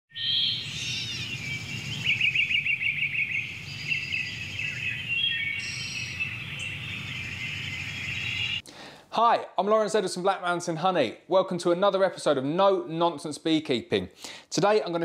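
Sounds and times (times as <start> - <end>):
birds chirping and whistling: 0.1 - 8.6
rapid bird trill: 0.1 - 8.6.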